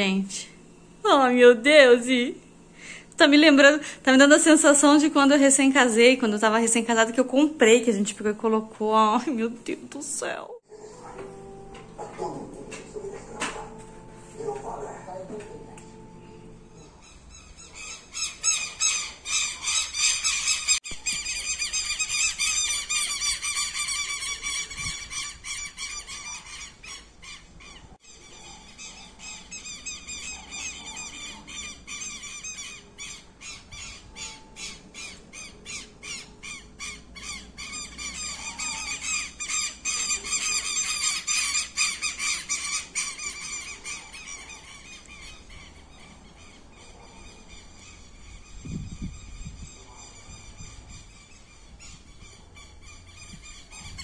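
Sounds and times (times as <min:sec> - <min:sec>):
flock of birds squawking: 0:16.8 - 0:54.0.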